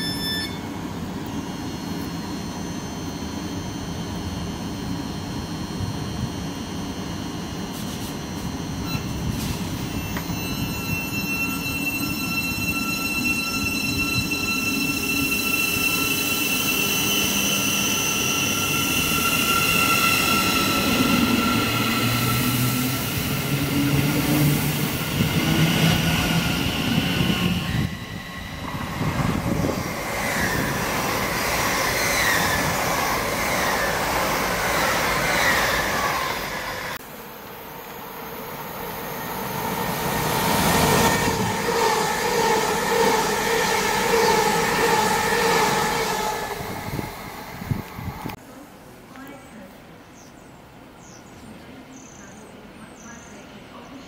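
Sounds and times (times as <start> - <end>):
electric train traction motors whining: 0.0 - 48.4
express train wheel and rail noise: 0.0 - 50.0, 50.6 - 54.0
wheels squealing: 8.8 - 37.0, 39.5 - 48.4.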